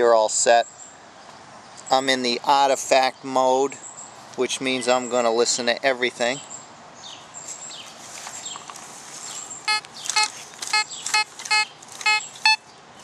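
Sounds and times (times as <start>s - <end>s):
metal detector beeps: 9.6s - 12.6s.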